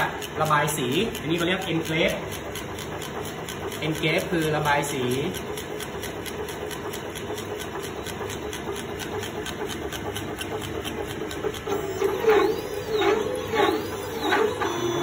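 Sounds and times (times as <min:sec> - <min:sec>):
steady motor hum: 0:00.0 - 0:15.0
stepper motor ticks: 0:00.0 - 0:15.0
motor whine rising and falling: 0:11.6 - 0:15.0.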